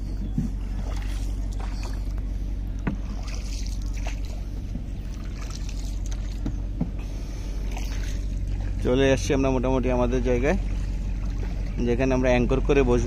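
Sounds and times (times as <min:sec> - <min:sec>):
low rumble: 0:00.0 - 0:13.0
paddle splashing through water: 0:00.2 - 0:08.9, 0:10.6 - 0:11.8.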